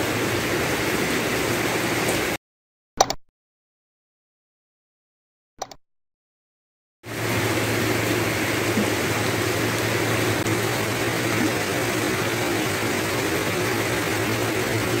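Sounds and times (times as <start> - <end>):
heavy rain hissing: 0.0 - 2.4, 7.0 - 15.0
low engine hum: 7.1 - 15.0.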